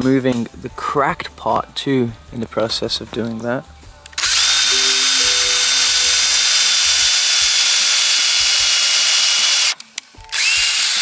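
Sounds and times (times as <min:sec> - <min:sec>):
power drill boring into wood: 0:04.2 - 0:11.0.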